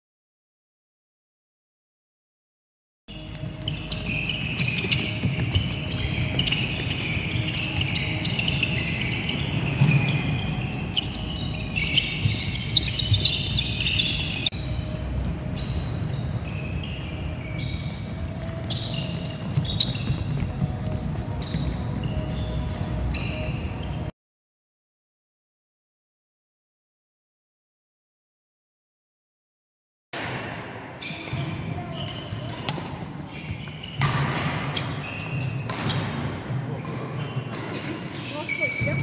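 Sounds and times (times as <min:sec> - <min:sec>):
shoes squeaking on wooden floor: 0:03.1 - 0:14.7, 0:15.4 - 0:24.1, 0:31.0 - 0:39.0.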